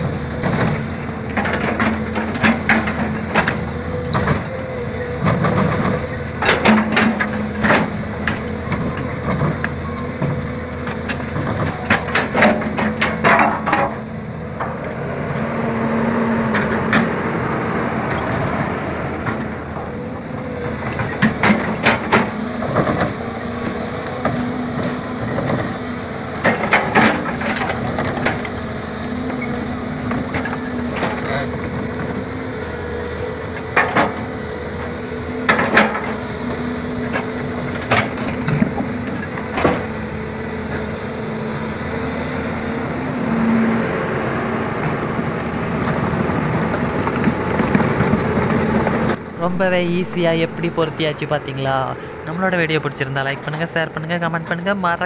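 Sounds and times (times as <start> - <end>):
excavator diesel engine humming: 0.0 - 55.0
track chain clanks: 5.2 - 14.9.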